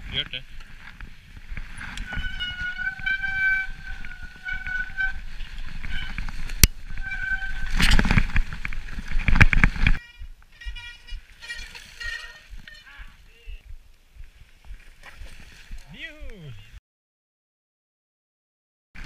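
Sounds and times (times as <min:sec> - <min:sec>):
bike brakes squealing: 0:02.0 - 0:06.2, 0:06.9 - 0:08.0, 0:10.0 - 0:13.0.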